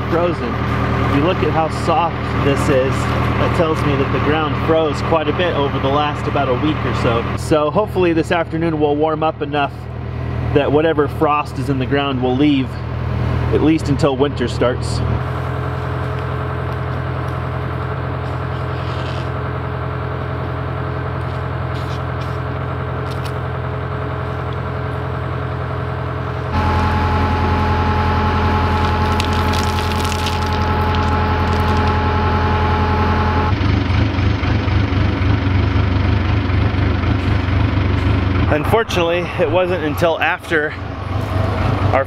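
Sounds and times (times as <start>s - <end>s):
engine idling: 0.0s - 42.0s
crinkly rustle: 28.8s - 32.0s.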